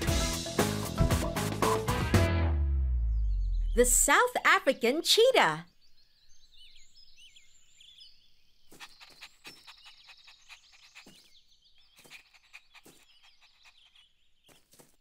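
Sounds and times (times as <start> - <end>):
small birds chirping and trilling: 4.7 - 15.0.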